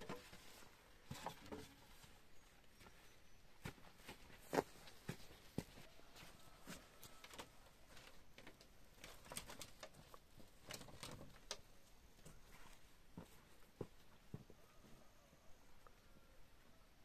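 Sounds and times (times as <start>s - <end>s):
faint footsteps: 0.1s - 8.3s, 12.1s - 15.1s.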